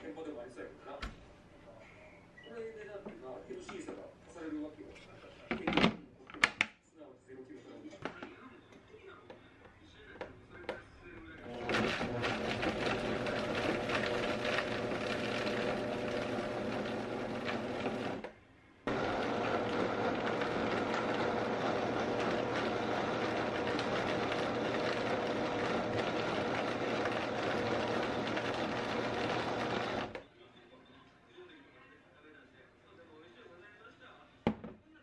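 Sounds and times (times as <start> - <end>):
blender motor whining: 11.4 - 18.3, 18.9 - 30.2.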